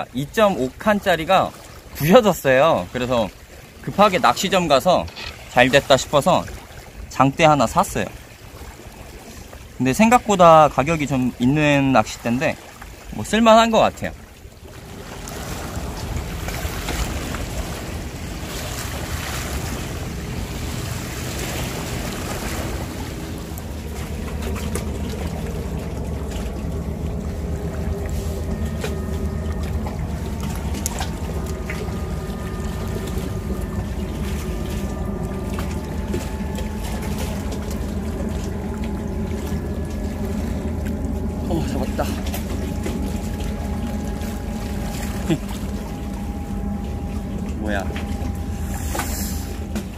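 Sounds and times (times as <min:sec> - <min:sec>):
low steady rumble: 0:00.0 - 0:49.9
water lapping against rocks: 0:00.0 - 0:49.9.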